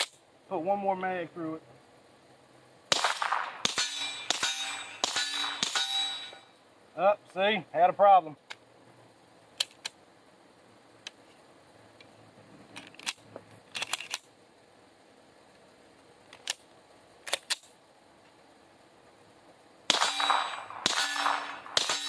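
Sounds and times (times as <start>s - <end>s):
suppressed pistol fire: 2.9s - 6.3s, 19.9s - 22.0s.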